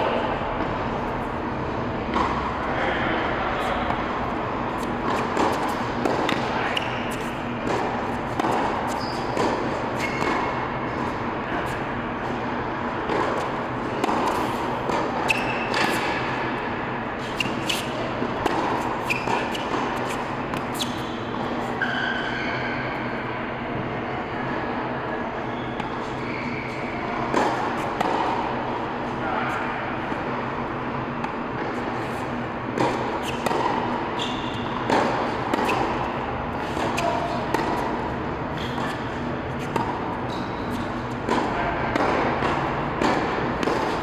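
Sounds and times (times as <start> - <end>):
steady background noise: 0.0 - 44.0
tennis ball bouncing on court: 2.1 - 2.5, 3.8 - 16.6, 17.2 - 22.2, 27.1 - 28.6, 31.2 - 44.0
tennis ball hitting racquet: 2.1 - 2.8, 3.6 - 22.4, 25.8 - 44.0.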